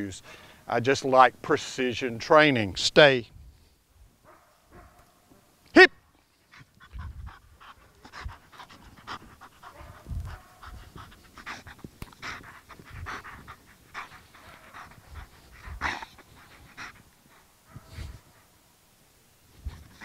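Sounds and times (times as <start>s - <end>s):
dog panting: 6.3s - 18.6s, 19.6s - 20.0s.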